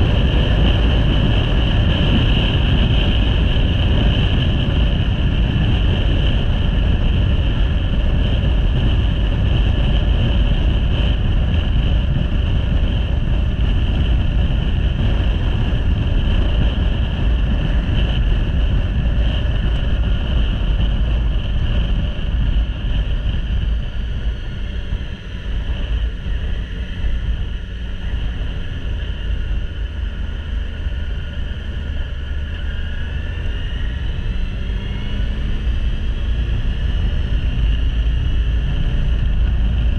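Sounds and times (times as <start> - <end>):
wind rushing over microphone: 0.0 - 39.9.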